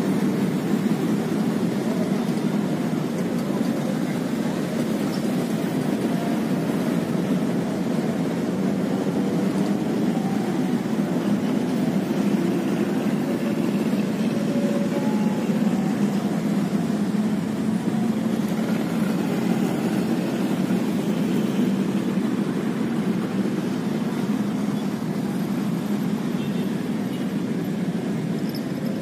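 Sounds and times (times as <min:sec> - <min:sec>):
road traffic rumble: 0:00.0 - 0:29.0.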